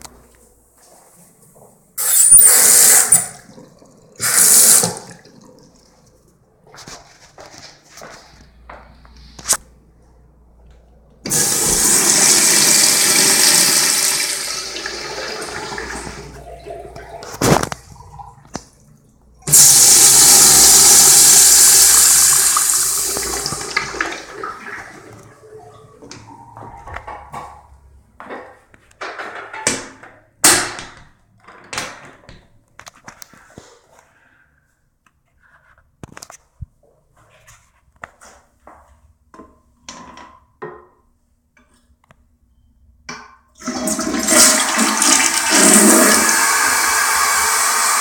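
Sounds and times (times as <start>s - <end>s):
urinal flushing water rush: 11.3s - 26.7s, 43.6s - 48.0s.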